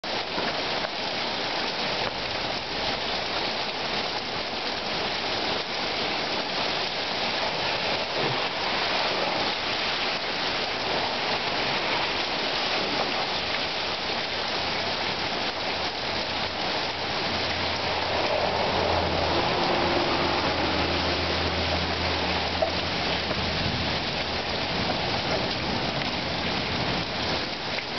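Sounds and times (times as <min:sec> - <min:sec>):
heavy rain pouring: 0:00.0 - 0:27.9.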